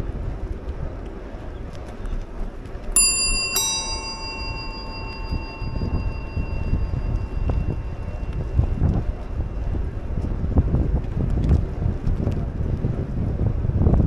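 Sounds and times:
wind rumble on microphone: 0.0s - 14.0s
bicycle bell ringing: 3.0s - 10.2s.

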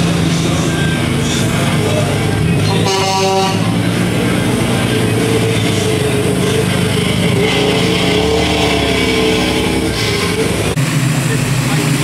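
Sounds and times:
car engines running: 0.0s - 12.0s.

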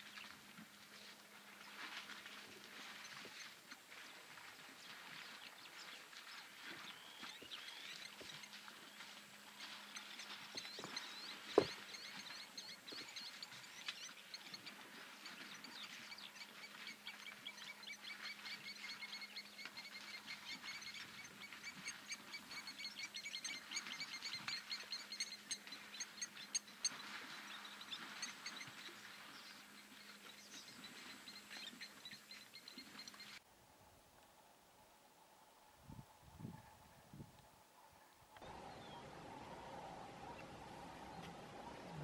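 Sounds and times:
high chirping calls: 6.9s - 29.4s.

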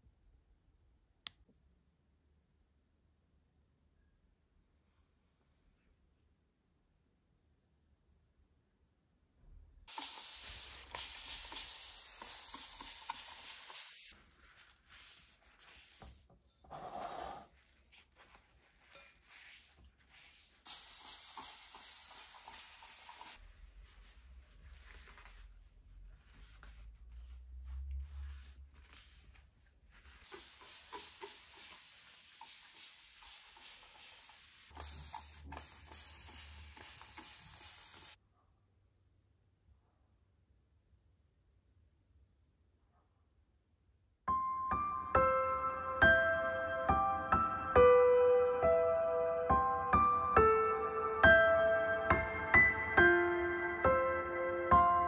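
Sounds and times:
spray bottle hissing: 9.9s - 14.2s, 20.4s - 23.4s, 30.2s - 38.2s.

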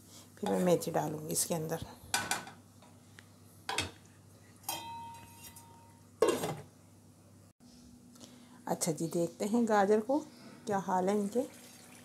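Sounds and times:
metal cookware clinking: 4.6s - 6.6s.

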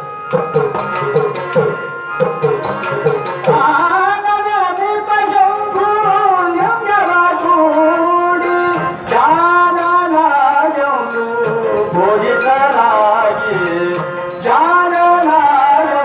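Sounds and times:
harmonium tones: 0.0s - 16.0s
hand drum beating: 0.3s - 4.0s
man singing: 3.5s - 16.0s.

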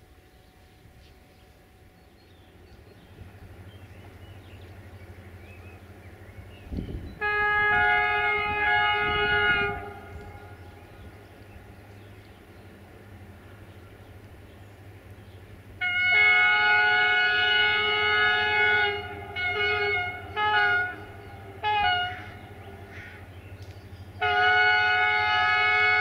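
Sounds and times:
distant locomotive horn blasts: 0.1s - 14.0s, 15.6s - 26.0s.

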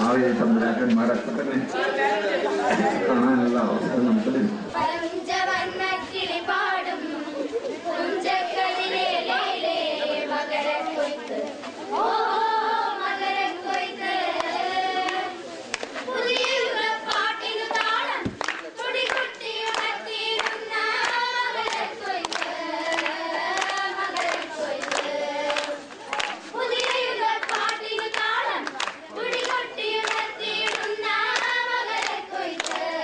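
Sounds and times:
girls singing together: 4.7s - 33.0s
hand claps: 14.4s - 32.9s.

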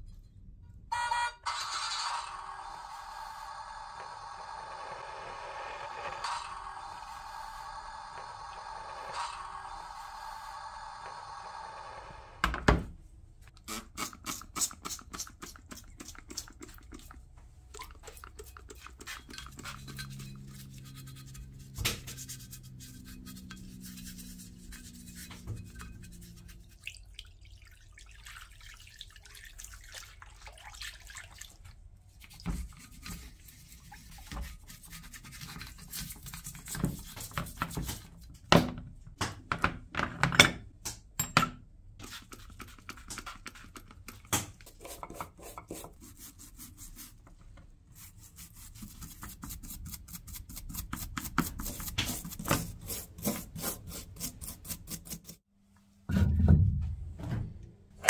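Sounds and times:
brush scrubbing metal: 14.1s - 26.9s, 32.2s - 38.2s, 44.7s - 55.4s.

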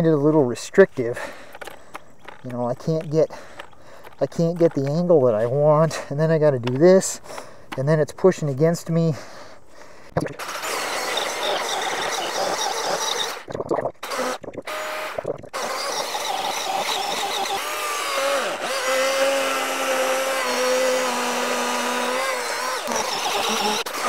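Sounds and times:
chainsaw cutting through log: 10.2s - 24.0s.

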